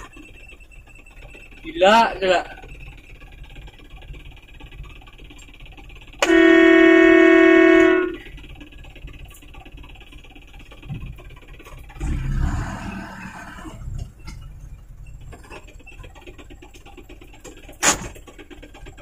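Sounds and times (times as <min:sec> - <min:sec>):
truck horn: 0:06.2 - 0:08.5
low rumble: 0:10.8 - 0:15.5.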